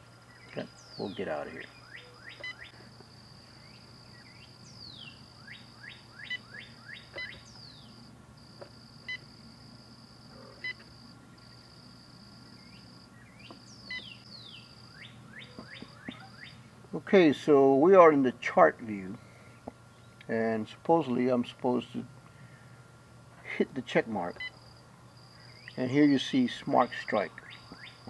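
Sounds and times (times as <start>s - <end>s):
steady high buzz: 0.0s - 28.0s
birds chirping and whistling: 0.3s - 2.8s, 3.6s - 8.0s, 12.6s - 16.6s, 27.4s - 28.0s.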